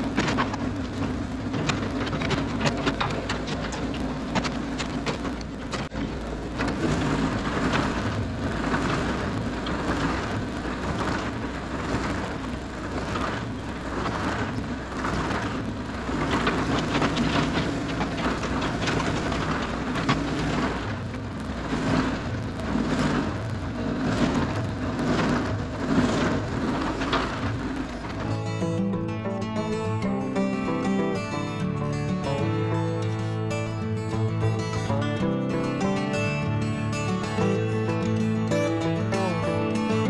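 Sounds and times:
gritty hiss: 0.0s - 28.9s
excavator diesel engine: 0.0s - 40.0s.

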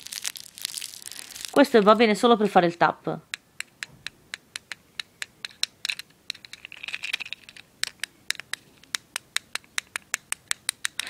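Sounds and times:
fidget cube buttons clicking: 3.3s - 11.0s.

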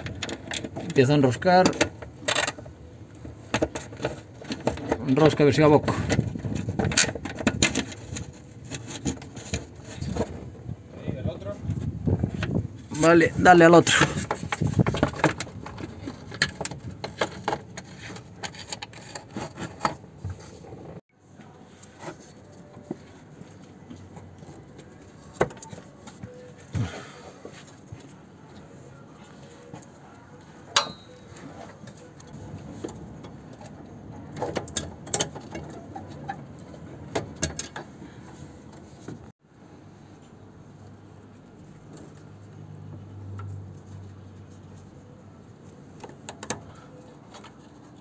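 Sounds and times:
tools clicking and knocking: 13.9s - 20.1s, 30.7s - 38.0s, 46.0s - 46.7s
metal clink with ring: 30.8s - 31.3s.

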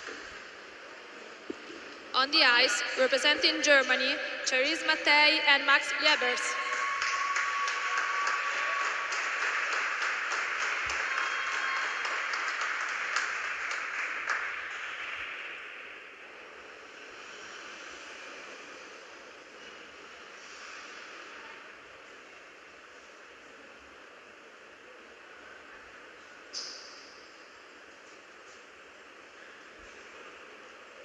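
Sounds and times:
audience clapping: 6.1s - 15.9s.

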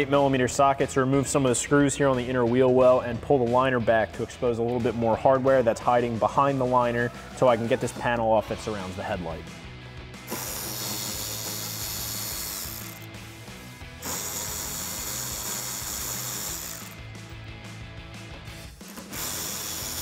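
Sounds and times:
cordless electric ratchet running: 10.3s - 13.2s, 14.0s - 17.1s, 19.0s - 20.0s.

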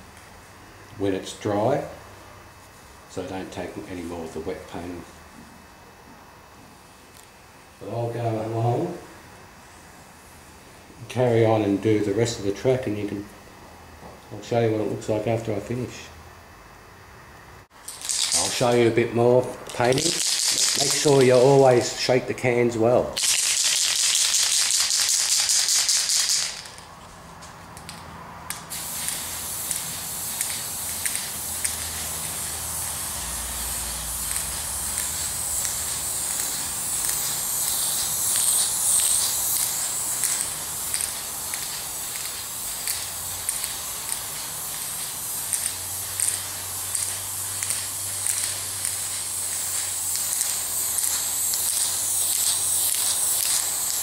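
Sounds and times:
mixing ball rattling in spray can: 17.8s - 18.9s, 19.6s - 21.6s, 23.2s - 27.0s, 28.7s - 54.0s
spray can hissing: 17.9s - 18.9s, 19.6s - 21.6s, 23.2s - 26.8s, 27.8s - 54.0s.

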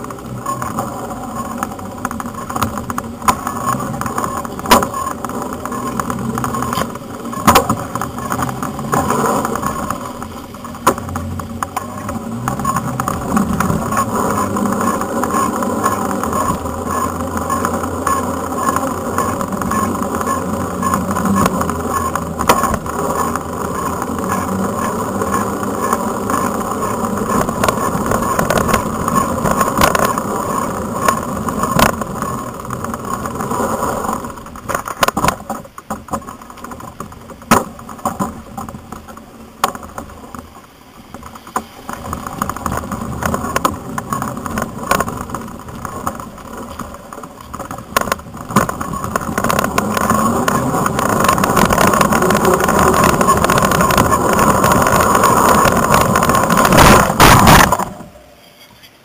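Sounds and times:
knocks and rattles from bumps: 0.0s - 58.1s
mountain bike rolling rumble: 0.0s - 58.4s
wind on microphone: 39.8s - 58.2s.

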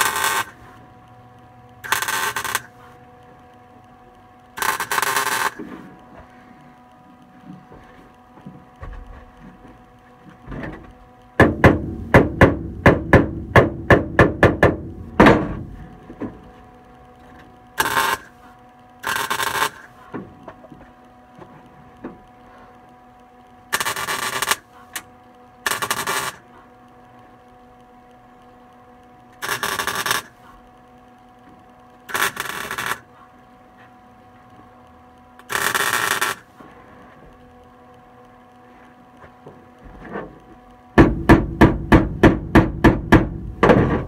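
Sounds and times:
welder crackling bursts: 0.0s - 6.4s, 11.1s - 16.0s, 16.6s - 20.1s, 23.2s - 33.2s, 35.1s - 36.6s
sharp knocks on metal: 11.4s - 15.6s, 41.0s - 44.0s.

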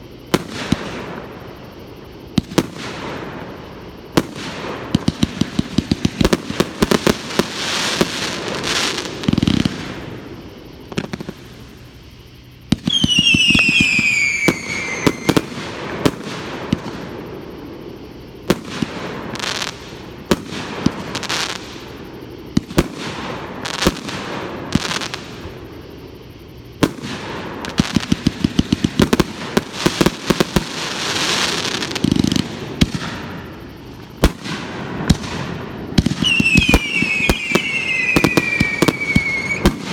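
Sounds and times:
firework pops and crackles: 10.9s - 11.6s, 12.7s - 17.1s, 26.8s - 39.9s
falling firework whistle: 12.7s - 17.1s, 26.8s - 39.9s.

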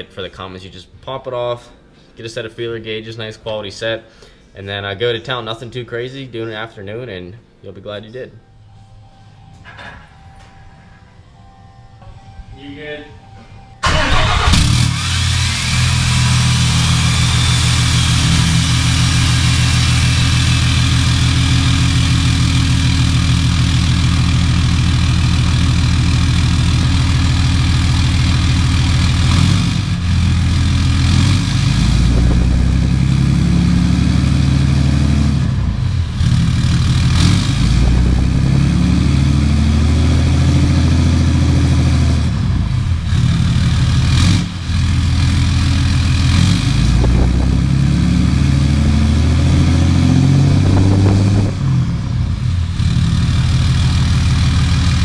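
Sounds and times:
diesel engine idling and revving: 13.8s - 55.0s.

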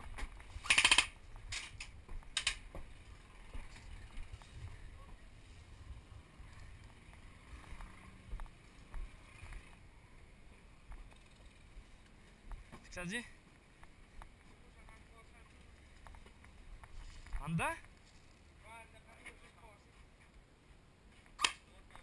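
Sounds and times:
automatic airsoft gun fire: 0.6s - 1.2s
sharp gun cracks: 0.6s - 1.7s, 21.4s - 21.7s.

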